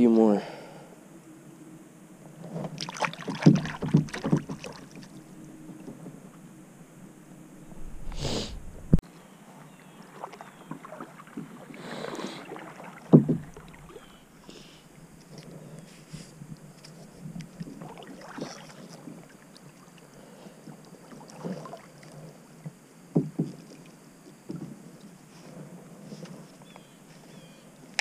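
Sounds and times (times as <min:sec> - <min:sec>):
paddle splashing and dripping: 0:02.6 - 0:06.4, 0:09.8 - 0:15.2, 0:16.6 - 0:24.0
paddle knocks: 0:03.2 - 0:04.8, 0:13.0 - 0:14.0.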